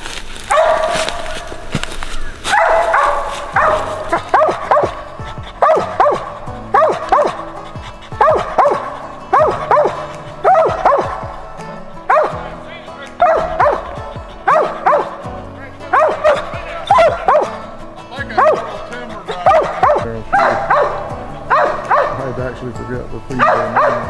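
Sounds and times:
dog barking sharply: 0.5s - 1.3s, 2.5s - 7.5s, 8.1s - 11.3s, 12.1s - 12.4s, 13.2s - 15.2s, 15.9s - 17.7s, 18.4s - 18.8s, 19.4s - 22.2s, 23.4s - 24.0s
dog drawn-out calls: 0.5s - 22.4s, 23.4s - 24.0s.

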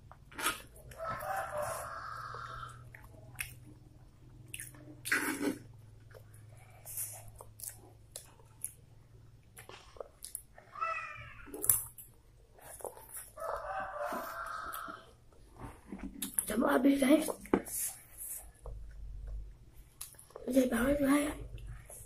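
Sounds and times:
noodles being chewed: 0.0s - 10.8s, 11.5s - 16.6s, 17.2s - 20.6s
rooster crowing: 0.9s - 2.8s, 13.4s - 15.1s.

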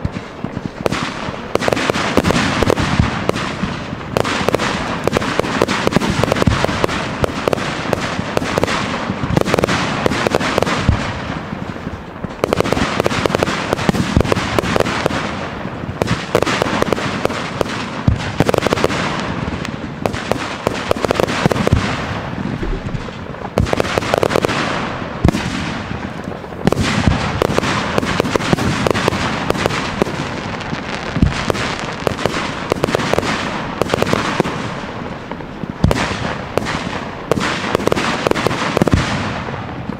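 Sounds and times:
fireworks bangs: 0.0s - 39.9s
fireworks crackling: 0.0s - 39.9s.

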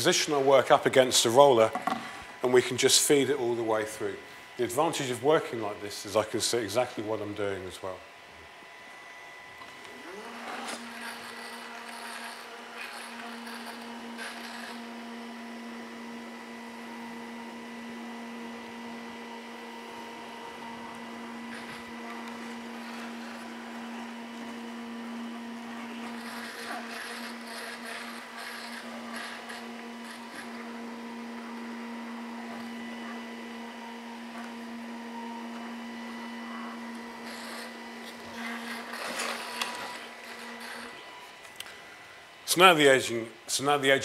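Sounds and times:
edge bander machine humming: 0.0s - 43.0s
machine rising whine: 8.7s - 42.9s
scratchy scraping: 26.0s - 30.5s.

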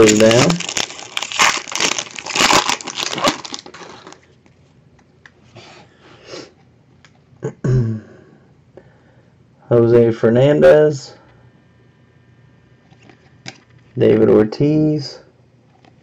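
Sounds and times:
cards rustling: 0.0s - 4.3s
foil wrapper crinkling and tearing: 0.0s - 4.3s.

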